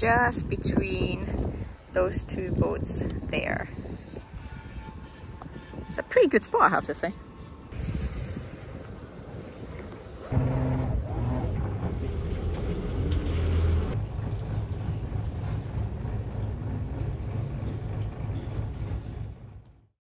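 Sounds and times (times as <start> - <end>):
boat engine humming: 10.2 - 19.7.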